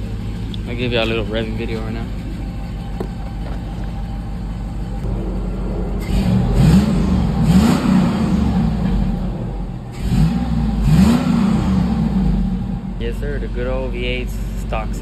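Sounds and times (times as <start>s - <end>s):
engine idling and revving: 0.0s - 15.0s.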